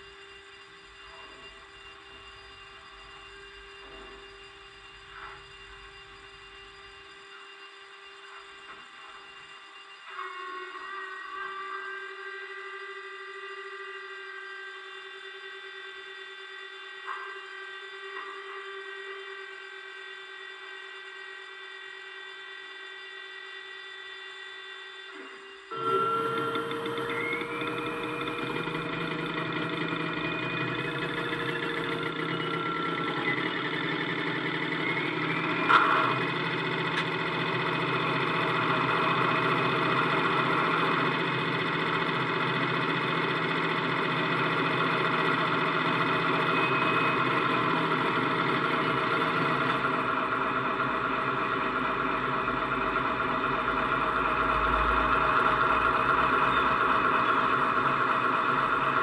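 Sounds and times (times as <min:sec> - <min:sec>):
diesel engine idling from speaker: 0:25.9 - 0:59.0.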